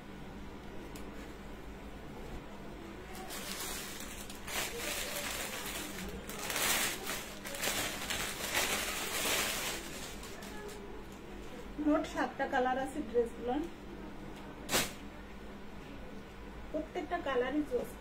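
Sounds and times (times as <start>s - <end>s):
dress rustling: 3.2s - 10.8s.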